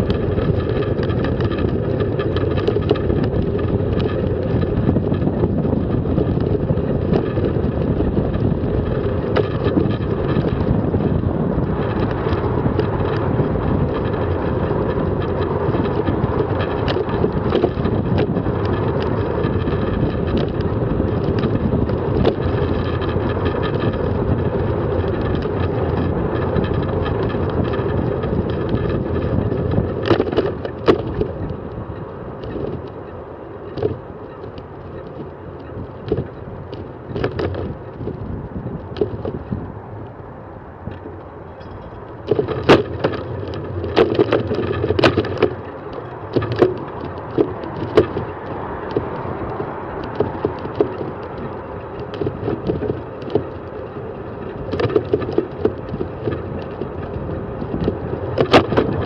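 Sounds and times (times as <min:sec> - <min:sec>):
bicycle rattling over bumps: 0:00.0 - 0:59.0
bicycle rolling: 0:00.0 - 0:59.0.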